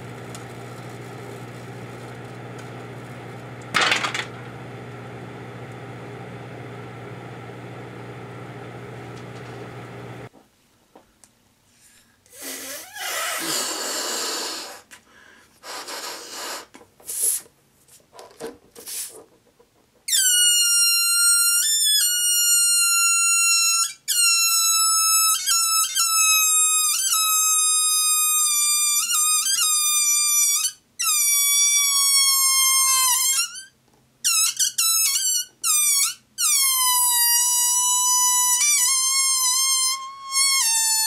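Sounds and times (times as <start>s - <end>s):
air blown into balloon: 12.3s - 14.9s, 15.6s - 17.4s
balloon neck squealing: 12.4s - 14.9s, 20.1s - 22.8s, 34.3s - 41.0s.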